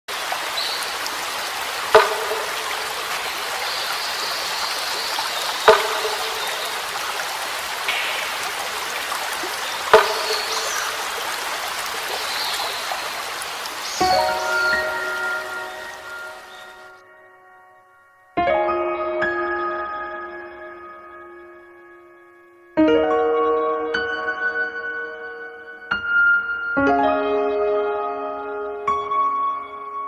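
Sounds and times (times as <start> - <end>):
running trickling water: 0.1 - 17.0.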